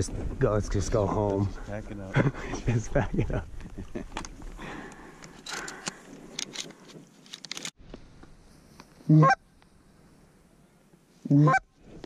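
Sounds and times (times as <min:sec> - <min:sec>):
rustling of dry grass: 0:00.0 - 0:12.0
goose honk: 0:09.1 - 0:09.4, 0:11.3 - 0:11.7.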